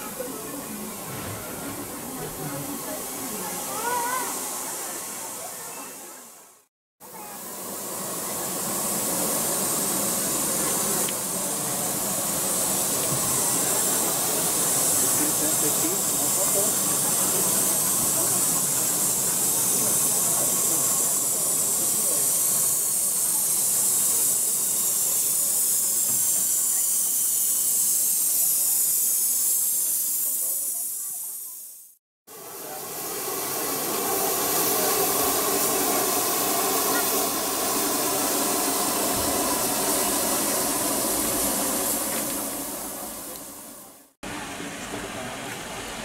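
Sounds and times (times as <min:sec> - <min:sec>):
steam hissing from locomotive: 0:00.0 - 0:46.0.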